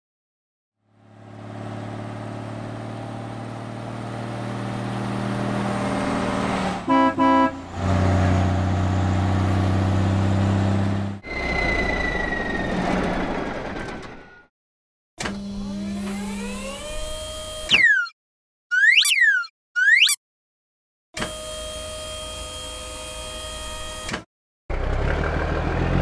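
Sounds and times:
cartoon truck engine drone: 0.8s - 14.5s, 15.2s - 20.2s, 21.2s - 26.0s
truck horn toots: 6.8s - 8.2s.

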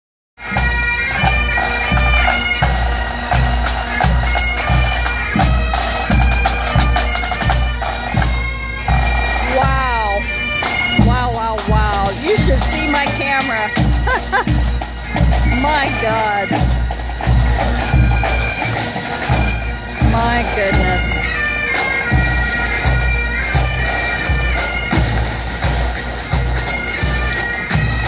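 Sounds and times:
bagpipes playing a tune: 0.4s - 28.0s
snare drums: 0.5s - 21.2s, 21.8s - 28.0s
bass drum beating: 20.0s - 21.1s.

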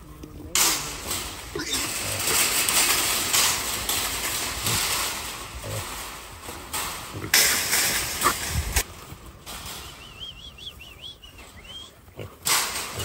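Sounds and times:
knocks and rattles of wire panels: 0.3s - 10.7s, 12.2s - 13.0s.

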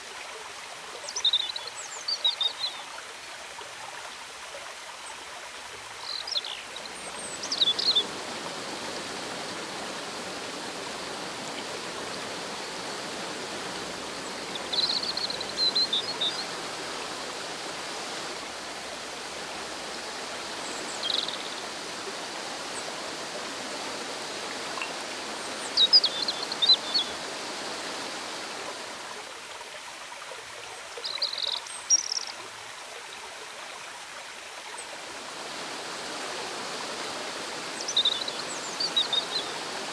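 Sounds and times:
river water rushing over rocks: 0.0s - 30.6s, 32.6s - 39.9s
bird chirping: 7.3s - 8.0s, 20.9s - 21.5s, 31.0s - 32.3s.

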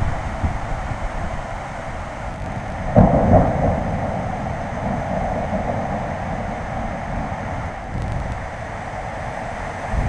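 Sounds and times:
steady background hiss: 0.0s - 10.0s
thunder clap and rumble: 2.0s - 10.0s.

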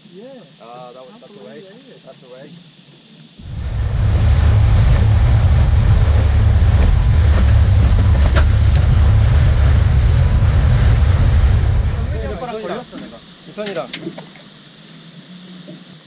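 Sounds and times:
water rushing from boat wake: 3.4s - 12.4s
wind buffeting microphone: 3.4s - 12.4s.

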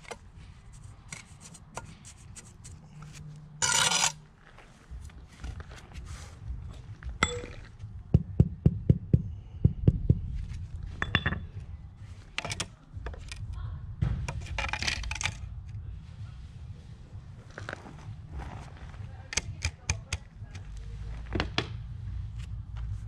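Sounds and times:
trowel scraping mortar: 0.0s - 4.2s
trowel tapping and clinking on stone: 7.2s - 7.7s, 11.0s - 11.5s.

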